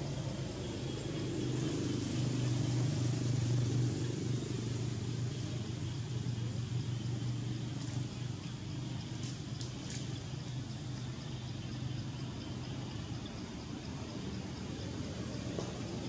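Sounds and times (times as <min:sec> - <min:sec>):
vehicle engine hum: 0:00.0 - 0:16.0.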